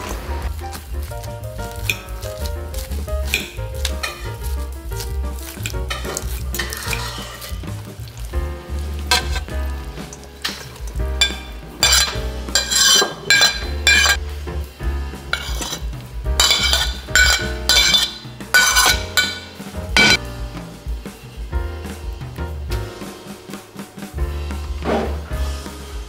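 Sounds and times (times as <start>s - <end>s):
fork scraping a ceramic plate: 5.9s - 7.6s, 11.3s - 14.2s, 16.4s - 20.2s
food sliding into a steel bowl: 6.0s - 7.6s.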